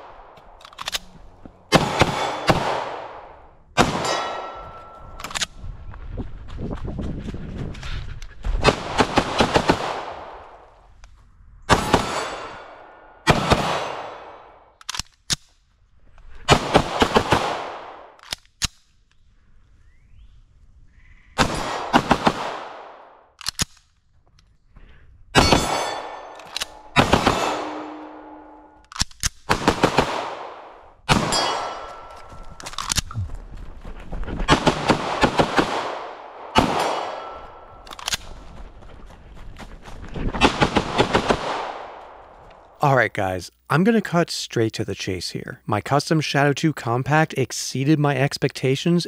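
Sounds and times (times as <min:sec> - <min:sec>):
gunshot echo: 0:01.7 - 0:05.0, 0:25.4 - 0:28.7, 0:29.5 - 0:32.1, 0:34.5 - 0:37.8.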